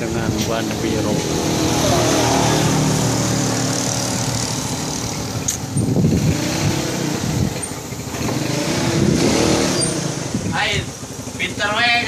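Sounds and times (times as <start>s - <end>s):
motorcycle engine idling: 2.8s - 6.2s, 10.2s - 12.0s.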